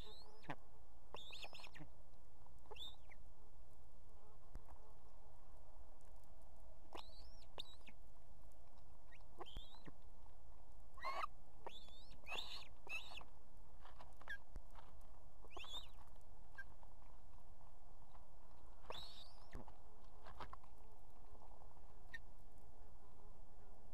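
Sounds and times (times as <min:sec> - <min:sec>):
ospreys whistled chirps: 0:01.2 - 0:01.8, 0:02.7 - 0:03.2, 0:07.0 - 0:07.9, 0:09.1 - 0:09.9, 0:11.0 - 0:13.2, 0:15.5 - 0:16.0, 0:18.9 - 0:19.6.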